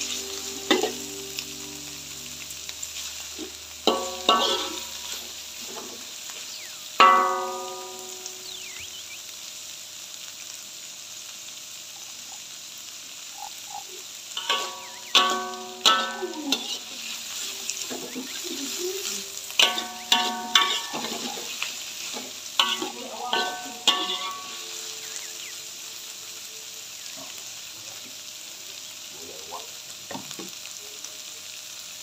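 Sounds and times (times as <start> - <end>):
metal ladle scraping a wok: 0.0 - 1.4, 2.5 - 6.0, 14.4 - 24.8
vegetables sizzling in a wok: 0.0 - 32.0.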